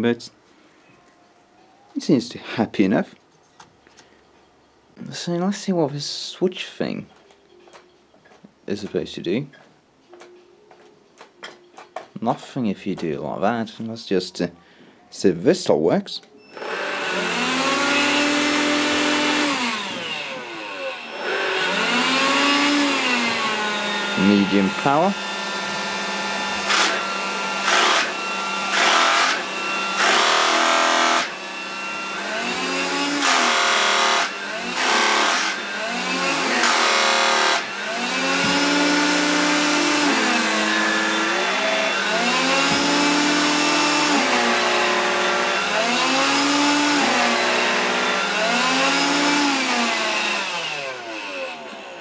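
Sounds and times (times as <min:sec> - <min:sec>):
vacuum brush-roll motor whine: 0:16.5 - 0:52.0
vacuum motor hum: 0:16.5 - 0:52.0.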